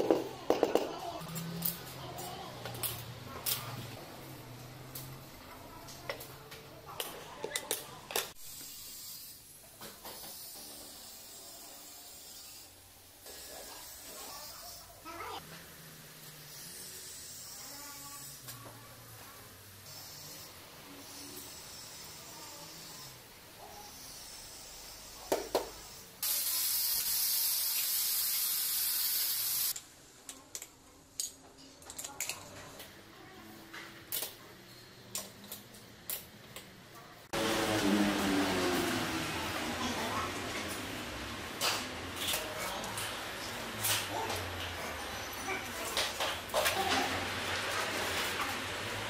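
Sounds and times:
loud steady hiss: 26.2 - 29.8.

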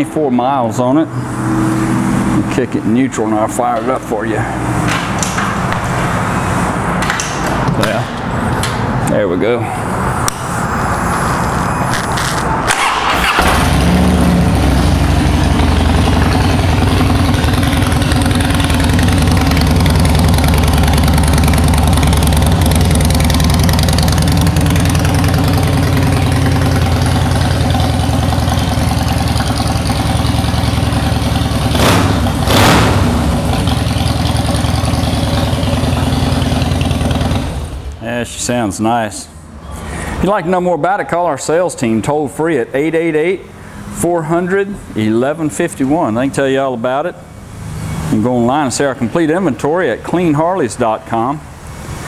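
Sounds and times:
motorcycle engine starting and idling: 11.9 - 38.0.

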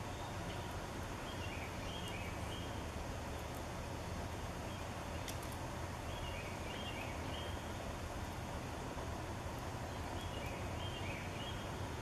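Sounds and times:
songbird calling: 0.0 - 2.8, 6.0 - 7.9, 9.8 - 12.0
low outdoor rumble: 0.0 - 12.0.

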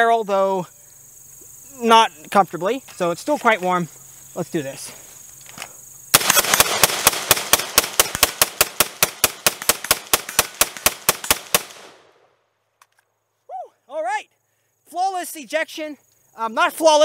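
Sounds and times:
rifle fired rapidly: 6.1 - 12.0.

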